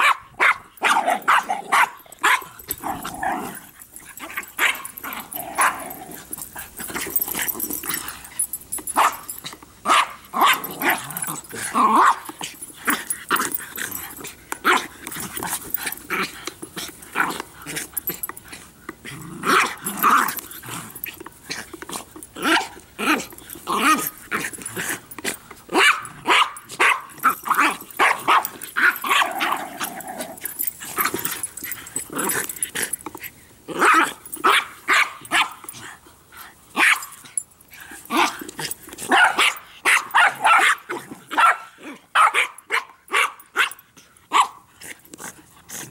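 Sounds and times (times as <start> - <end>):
dogs barking: 0.0 - 3.1, 4.2 - 6.0, 8.4 - 12.3, 25.7 - 31.0, 39.1 - 44.6
dogs growling: 0.8 - 42.1, 44.6 - 45.9.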